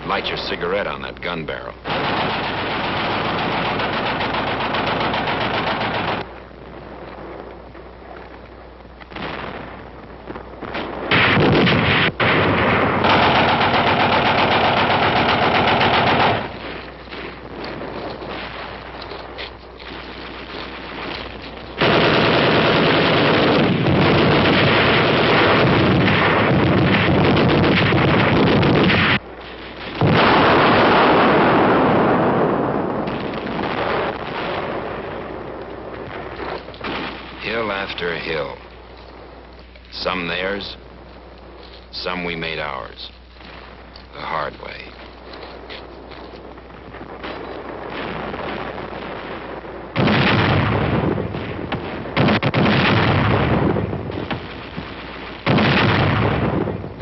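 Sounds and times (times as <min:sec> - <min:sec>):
rapid gunfire: 0:01.8 - 0:06.3, 0:10.8 - 0:16.9, 0:21.8 - 0:29.2, 0:50.0 - 0:54.8, 0:55.4 - 0:56.8
artillery booms: 0:01.8 - 0:07.3, 0:09.1 - 0:19.1, 0:19.9 - 0:38.6, 0:46.7 - 0:57.0
loud rumbling explosion: 0:09.1 - 0:38.6, 0:46.5 - 0:57.0.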